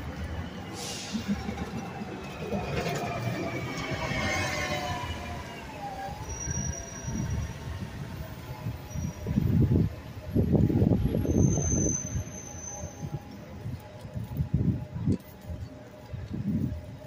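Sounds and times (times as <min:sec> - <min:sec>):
bus squealing whine: 0:00.0 - 0:13.8
wind noise: 0:00.0 - 0:17.0
bicycle rolling on pavement: 0:12.5 - 0:17.0.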